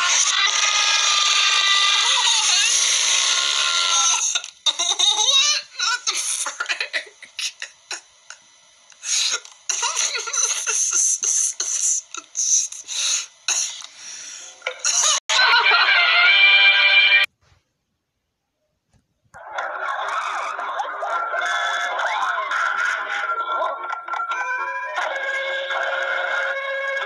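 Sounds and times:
man laughing: 9.7s - 11.5s.

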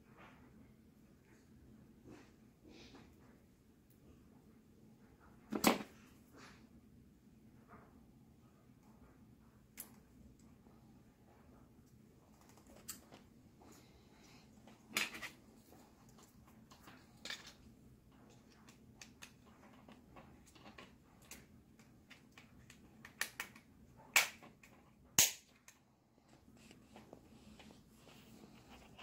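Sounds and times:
plastic clicks and snaps: 21.2s - 25.8s.

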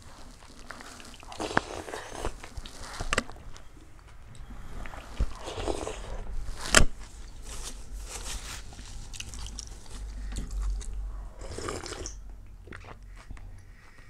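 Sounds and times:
chewing and crunching: 0.0s - 14.0s.

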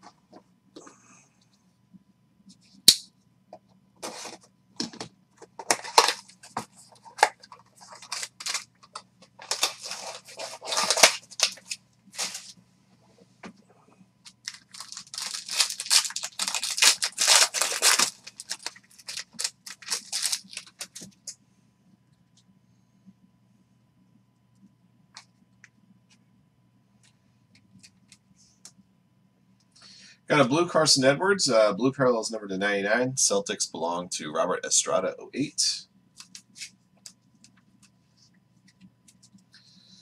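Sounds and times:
foil wrapper crinkling and tearing: 5.7s - 12.5s, 14.3s - 21.3s
packaging snap: 14.5s - 21.1s.

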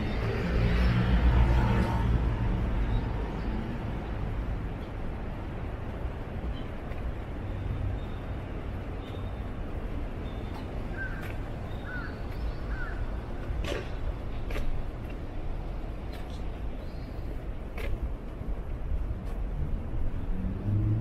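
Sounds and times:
city traffic hum: 0.0s - 21.0s
crow cawing: 10.9s - 11.2s, 11.8s - 13.0s.

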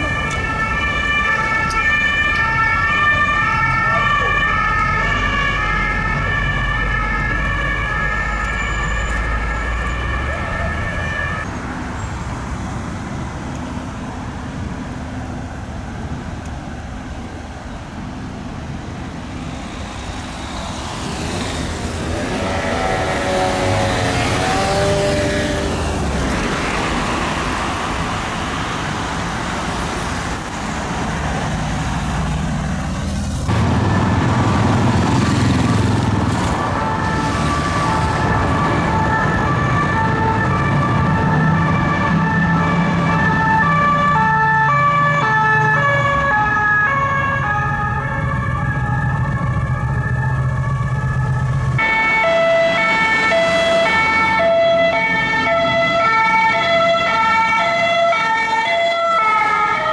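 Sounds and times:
two-tone emergency siren: 0.0s - 11.5s, 33.6s - 59.9s
city traffic: 0.0s - 59.9s.

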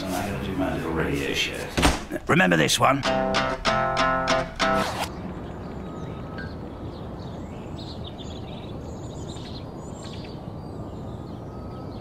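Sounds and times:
street ambience: 0.0s - 12.0s
small birds chirping: 5.0s - 12.0s.

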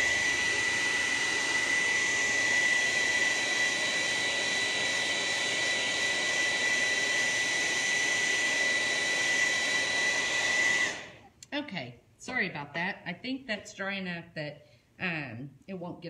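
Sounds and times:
hot-air dryer whining: 0.0s - 11.3s.

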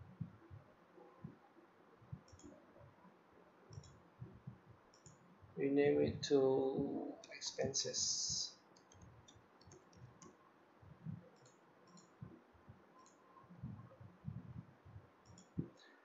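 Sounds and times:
keyboard typing: 2.2s - 2.6s, 3.7s - 5.2s, 8.8s - 10.4s
mouse clicks: 2.2s - 2.6s, 3.7s - 4.0s, 8.8s - 10.4s, 11.4s - 12.2s, 13.0s - 13.8s, 15.2s - 15.6s.

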